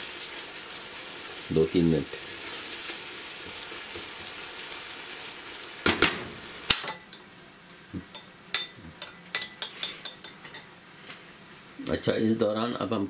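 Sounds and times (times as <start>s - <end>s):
food sizzling in pot: 0.0s - 12.4s
metal spoon clinking bowl: 8.1s - 10.7s.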